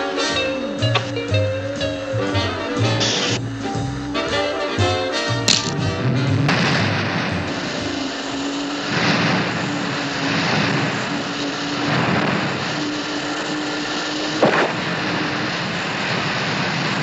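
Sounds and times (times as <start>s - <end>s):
cartoon engine drone: 0.0s - 17.0s
water spray rushing: 6.4s - 17.0s.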